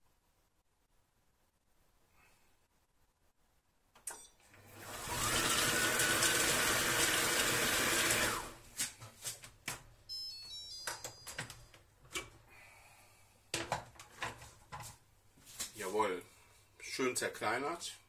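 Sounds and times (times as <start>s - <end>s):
food processor motor whining: 4.6s - 8.6s.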